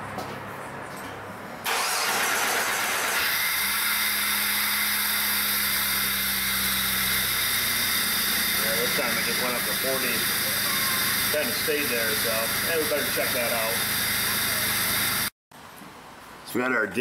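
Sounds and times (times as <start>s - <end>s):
car engine cranking and starting: 1.6s - 3.2s.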